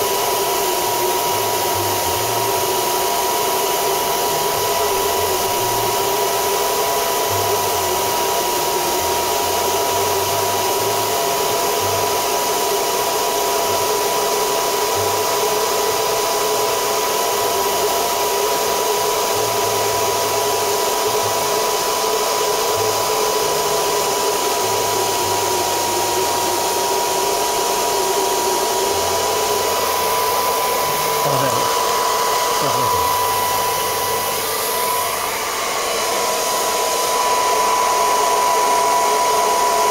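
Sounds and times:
hair dryer running: 0.0s - 39.9s.

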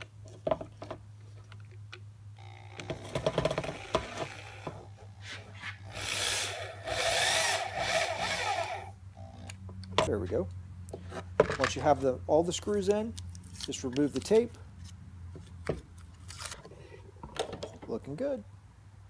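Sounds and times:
power drill whining: 2.4s - 4.9s, 5.7s - 9.5s.

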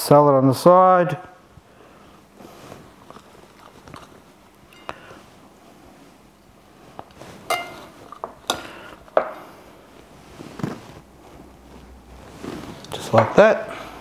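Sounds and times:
metal tongs clinking on ceramic: 4.7s - 5.0s.

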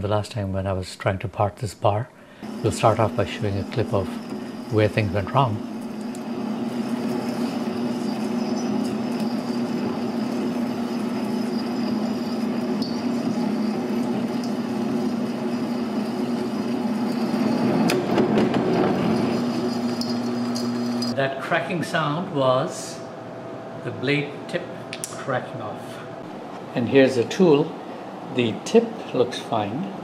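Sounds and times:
metal lathe humming: 2.4s - 21.2s.

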